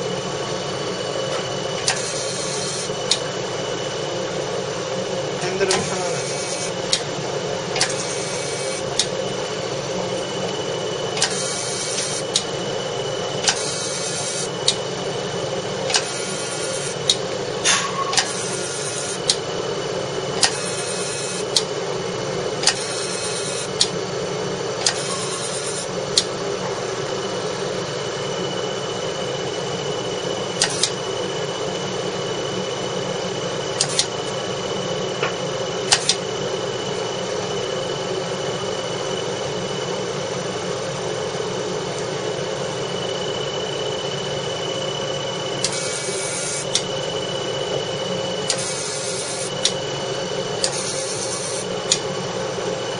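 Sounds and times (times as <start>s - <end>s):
cooling fan hum: 0.0s - 52.9s
laser pulse clicks: 13.4s - 14.8s, 20.4s - 21.7s, 30.6s - 31.0s, 33.8s - 34.2s, 35.9s - 36.2s, 45.6s - 46.9s, 48.5s - 49.8s.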